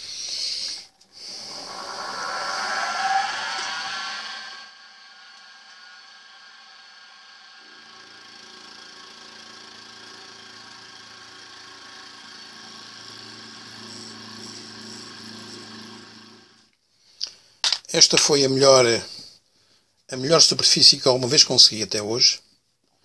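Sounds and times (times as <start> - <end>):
milling machine whine: 1.2 - 16.7
cutter cutting steel: 3.6 - 16.6.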